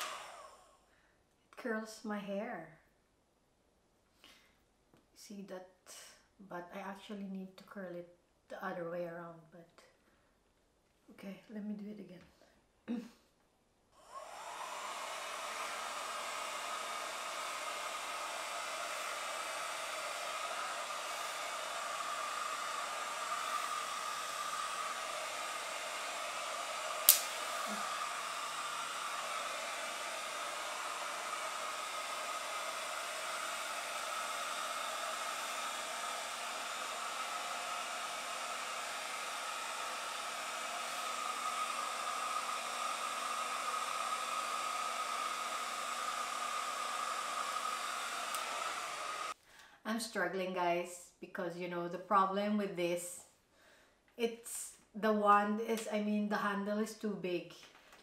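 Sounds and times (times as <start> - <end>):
hot-air styler blowing: 0.0 - 0.7, 14.0 - 49.7
sharp click: 27.1 - 27.4.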